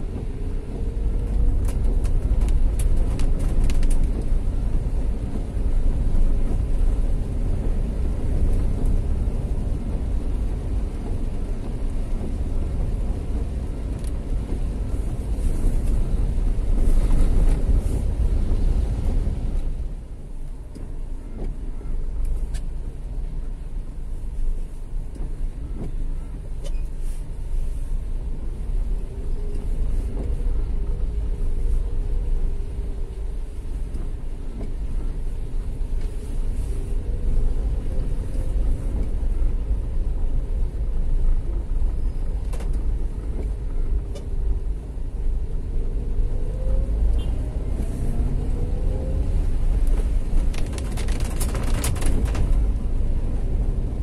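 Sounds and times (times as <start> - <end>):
vehicle engine rumbling: 0.0 - 54.0
sharp clicks and rattles: 49.8 - 52.7.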